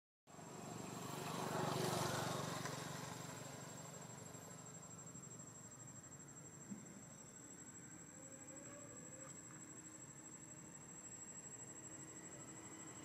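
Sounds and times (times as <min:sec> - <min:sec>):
vehicle engine passing: 0:00.3 - 0:05.9
high-pitched insect whine: 0:00.4 - 0:13.0.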